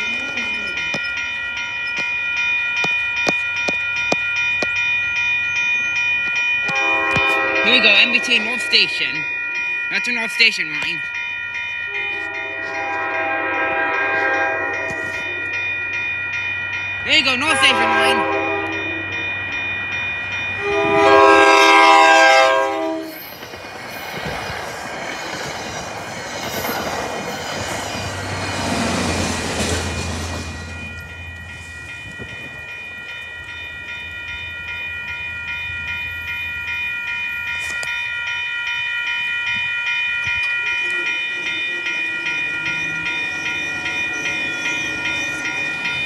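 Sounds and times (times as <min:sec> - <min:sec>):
train wheels on rails: 0:00.0 - 0:17.7, 0:18.6 - 0:46.0
crossing warning bell ringing: 0:00.0 - 0:46.0
train horn blast: 0:06.7 - 0:08.2, 0:11.9 - 0:15.1, 0:17.5 - 0:18.9, 0:20.6 - 0:23.1.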